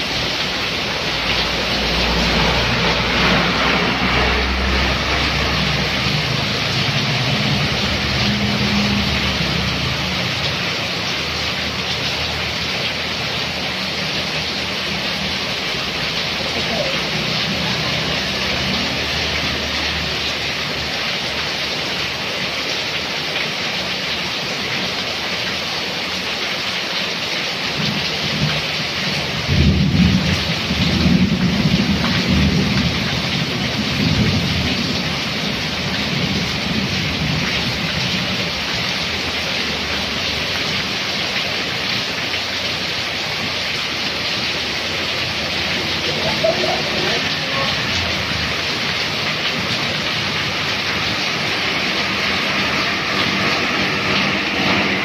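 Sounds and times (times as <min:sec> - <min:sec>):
heavy rain pouring: 0:00.0 - 0:55.0
thunder rumbling: 0:29.4 - 0:38.3.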